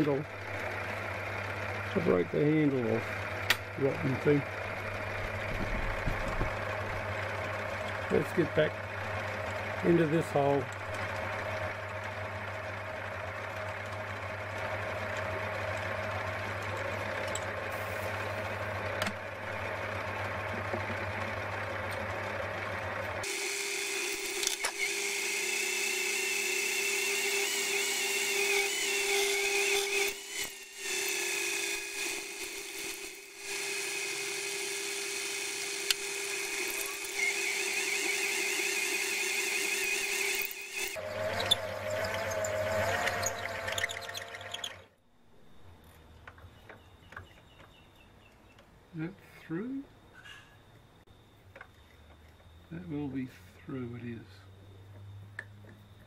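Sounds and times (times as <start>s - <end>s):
metal lathe drilling whine: 6.3s - 18.8s, 21.9s - 45.0s.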